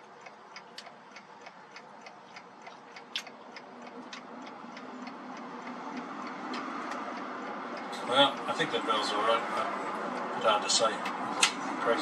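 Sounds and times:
mechanical clock ticking: 0.0s - 9.1s.

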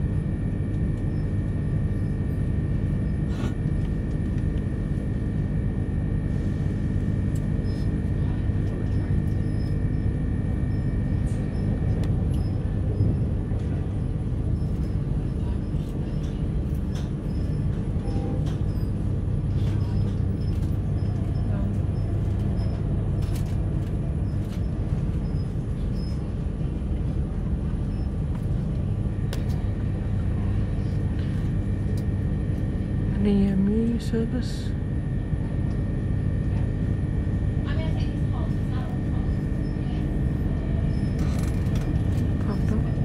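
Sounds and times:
electric train rumble inside: 0.0s - 43.0s.

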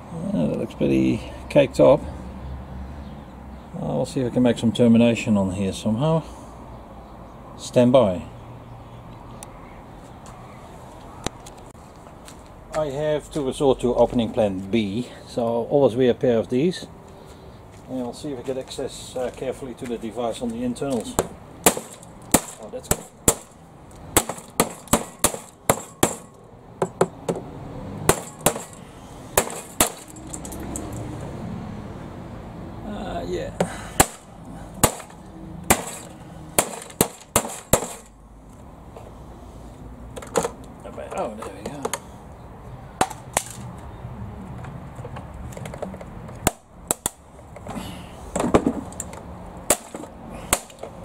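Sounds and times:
hammer breaking plastic casing: 21.6s - 23.5s, 24.2s - 26.4s, 28.1s - 28.8s, 29.4s - 30.2s, 34.0s - 38.1s, 49.7s - 50.9s.

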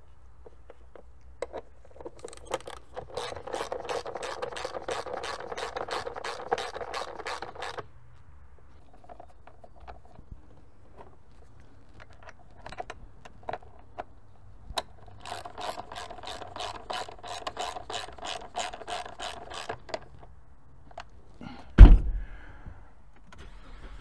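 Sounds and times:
hand ratchet wrench clicking: 2.1s - 7.8s, 14.8s - 20.2s
heavy thump: 21.8s - 22.4s.

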